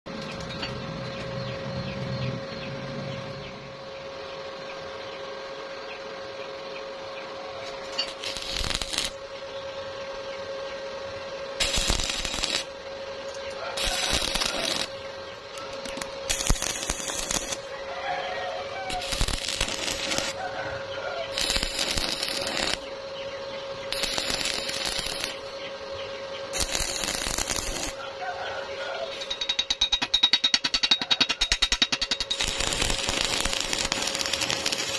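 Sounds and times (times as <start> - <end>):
steady background hum: 0.1 - 34.9
crackling welding arc: 7.8 - 9.3, 11.6 - 15.0, 15.6 - 17.8, 18.6 - 23.0, 23.9 - 25.6, 26.5 - 28.0, 31.4 - 34.9.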